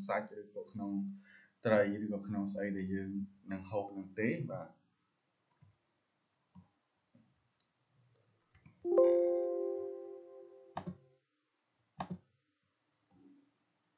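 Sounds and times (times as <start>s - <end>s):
alert chime chord: 8.9s - 10.7s
mouse clicks: 12.0s - 12.2s.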